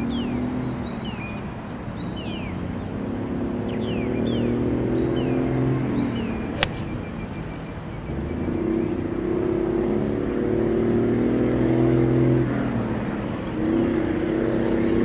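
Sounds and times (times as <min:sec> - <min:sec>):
birds chirping: 0:06.0 - 0:09.0
golf club striking ball: 0:06.6 - 0:07.3.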